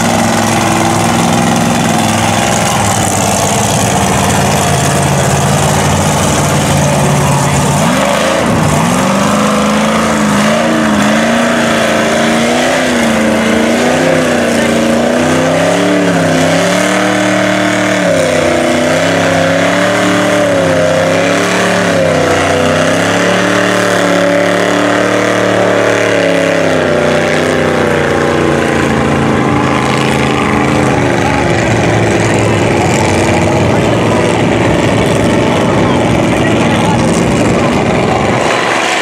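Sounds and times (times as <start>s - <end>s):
engine revving: 0.0s - 39.0s.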